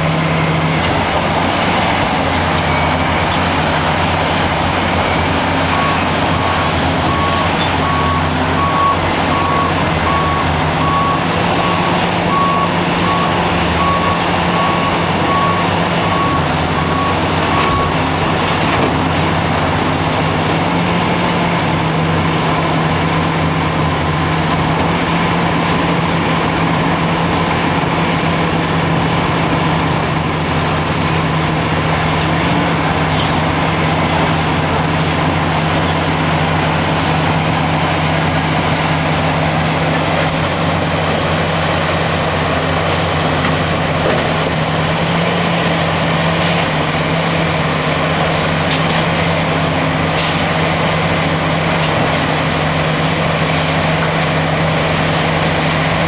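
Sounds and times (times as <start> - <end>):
diesel truck engine running: 0.0 - 56.0
reversing alarm beeping: 2.3 - 18.2.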